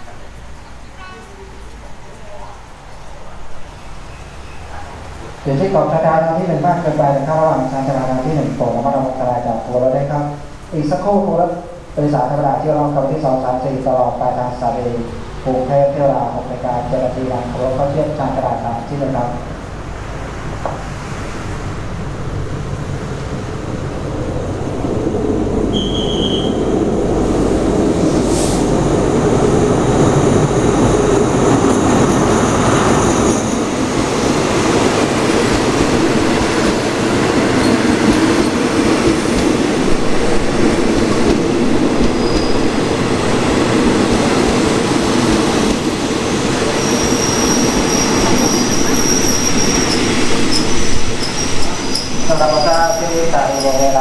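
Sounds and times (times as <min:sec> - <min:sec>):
train wheels rumbling: 0:00.0 - 0:54.0
train wheels squealing: 0:03.7 - 0:04.8, 0:25.7 - 0:26.6, 0:42.1 - 0:42.8, 0:46.7 - 0:54.0.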